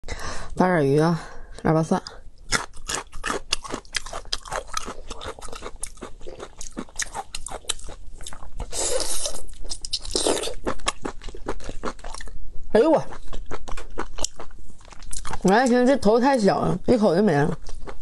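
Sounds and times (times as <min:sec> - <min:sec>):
close chewing with wet clicks: 0:02.4 - 0:08.7, 0:13.1 - 0:15.8, 0:17.6 - 0:18.0.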